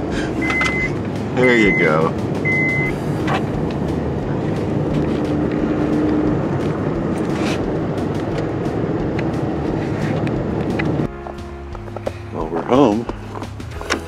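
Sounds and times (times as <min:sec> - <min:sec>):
tyre noise on road: 0:00.0 - 0:11.1.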